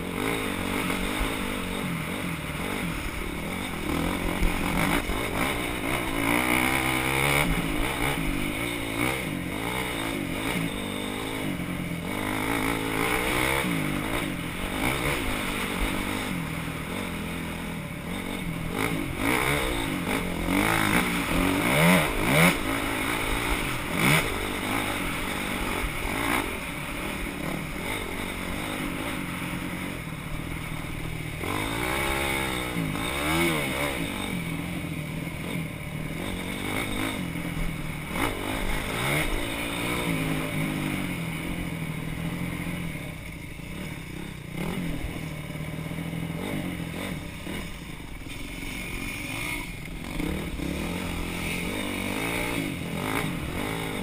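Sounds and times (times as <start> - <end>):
motorcycle engines revving: 0.0 - 54.0.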